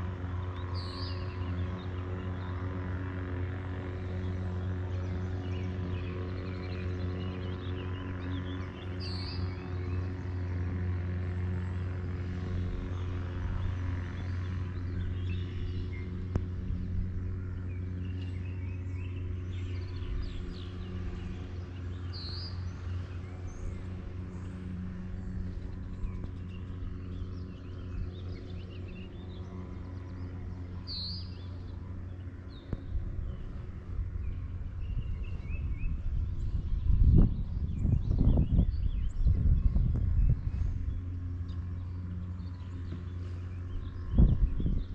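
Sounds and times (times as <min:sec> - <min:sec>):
birds chirping: 0:00.0 - 0:44.9
low engine hum: 0:00.0 - 0:44.9
low rumble: 0:11.4 - 0:44.9.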